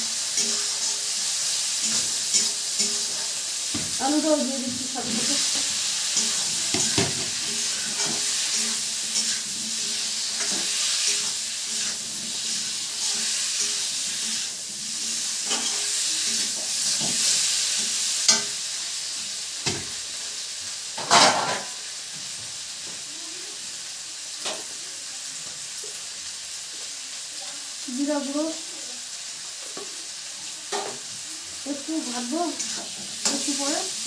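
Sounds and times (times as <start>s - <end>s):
vegetables sizzling in hot oil: 0.0s - 34.0s
sharp knocks on pan: 6.7s - 7.3s.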